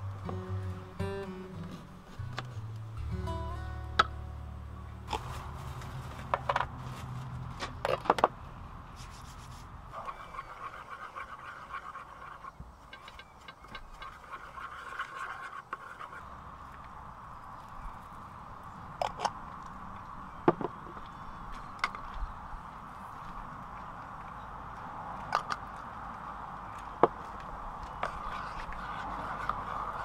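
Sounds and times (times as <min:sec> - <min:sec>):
metal spoon scraping a bowl: 0:09.9 - 0:16.3.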